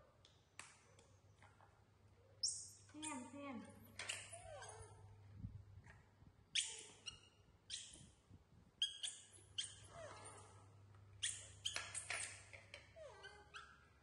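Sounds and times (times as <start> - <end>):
monkeys squeaking and chirping: 4.0 - 5.0, 6.5 - 8.2, 8.8 - 10.6, 11.2 - 13.9.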